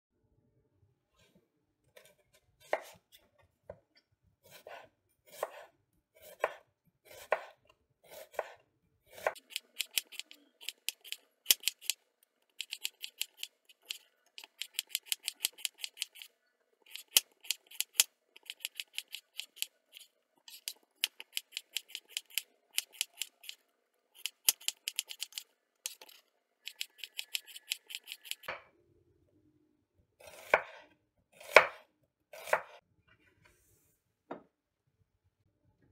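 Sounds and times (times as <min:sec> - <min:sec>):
knife slicing onions on board: 0:02.0 - 0:03.2, 0:04.4 - 0:12.0, 0:12.6 - 0:16.3, 0:16.9 - 0:23.6, 0:24.2 - 0:28.5, 0:30.2 - 0:32.8.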